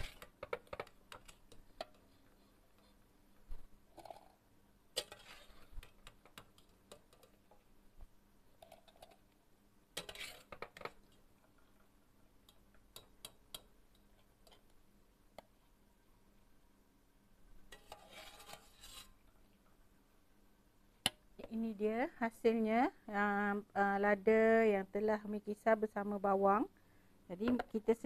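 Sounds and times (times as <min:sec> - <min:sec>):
strainer scraping metal pot: 0:00.0 - 0:00.3, 0:05.0 - 0:05.8, 0:10.0 - 0:10.6, 0:17.7 - 0:19.2.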